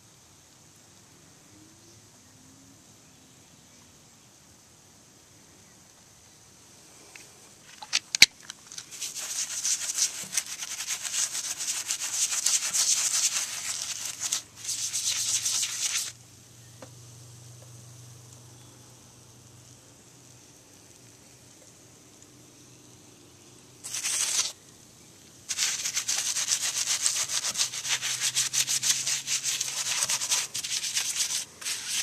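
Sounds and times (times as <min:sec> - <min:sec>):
brush scrubbing wheel: 0:08.8 - 0:16.2, 0:23.8 - 0:24.5, 0:25.5 - 0:32.0.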